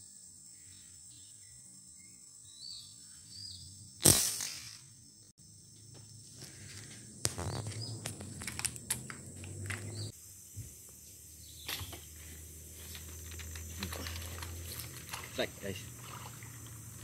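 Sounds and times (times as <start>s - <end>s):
insects droning: 0.0s - 17.0s
rustles: 6.1s - 17.0s.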